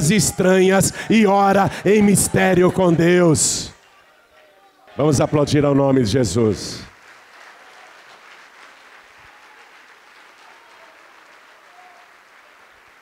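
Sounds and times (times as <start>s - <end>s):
congregation applauding: 4.9s - 13.0s.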